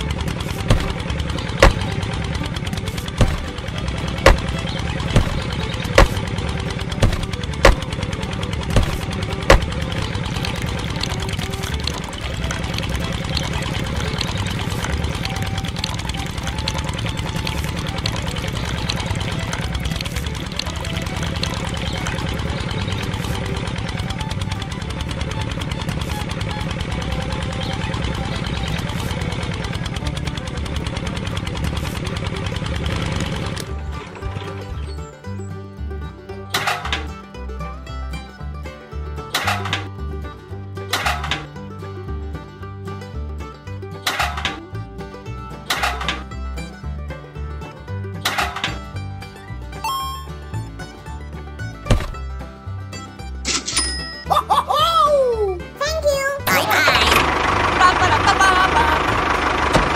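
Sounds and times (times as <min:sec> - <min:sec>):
sharp knocks: 0:00.0 - 0:16.6, 0:51.8 - 0:52.3
small engine chugging: 0:00.0 - 0:59.9
small motor rumbling: 0:00.0 - 0:59.9.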